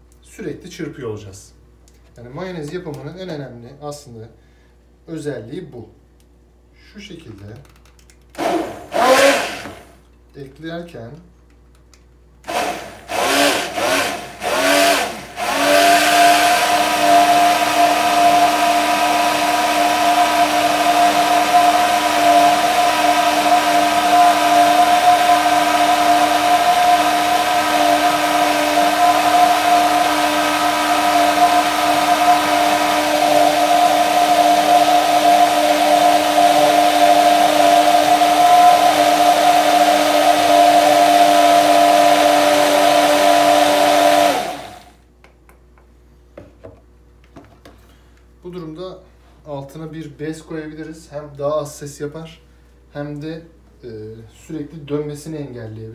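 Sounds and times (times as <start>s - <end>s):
immersion blender running: 8.4s - 10.0s, 12.4s - 45.0s.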